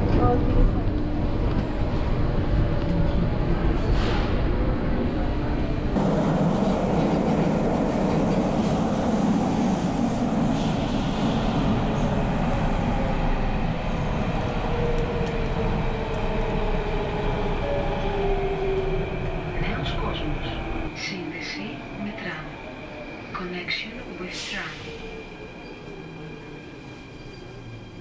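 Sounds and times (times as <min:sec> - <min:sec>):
train running rumble: 0:00.0 - 0:17.2.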